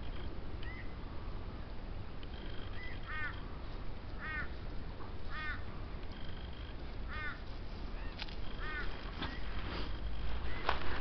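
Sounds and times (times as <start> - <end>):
steady low rumble: 0.0 - 11.0
animal harsh call: 8.4 - 10.7.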